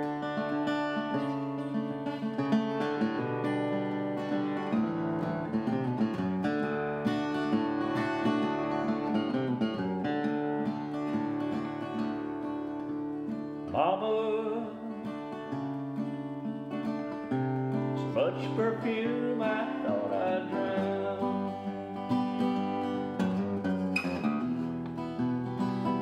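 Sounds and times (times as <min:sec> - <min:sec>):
acoustic guitar playing: 0:00.0 - 0:26.0
man singing: 0:13.7 - 0:15.4, 0:17.9 - 0:22.0.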